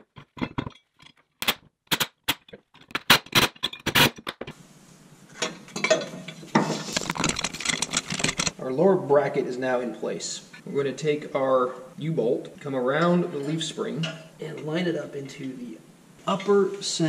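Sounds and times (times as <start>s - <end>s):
metal knocks and rattles: 0.0s - 1.2s
steady hiss: 4.5s - 7.2s, 8.6s - 17.0s.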